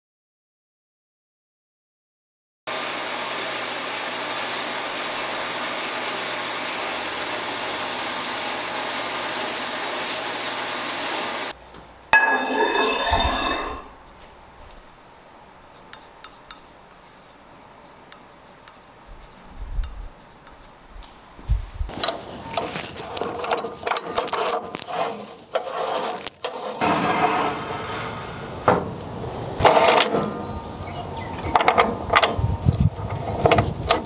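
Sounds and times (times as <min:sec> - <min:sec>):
bandsaw cutting steel: 0:02.7 - 0:11.6, 0:12.2 - 0:14.0, 0:23.0 - 0:28.7
steel tubing clattering: 0:21.9 - 0:26.8.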